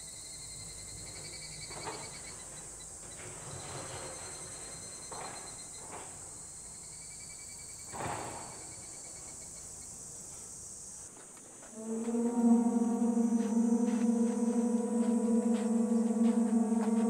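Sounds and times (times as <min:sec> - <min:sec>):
insects trilling: 0:10.8 - 0:17.0
sustained ringing tone: 0:11.7 - 0:17.0.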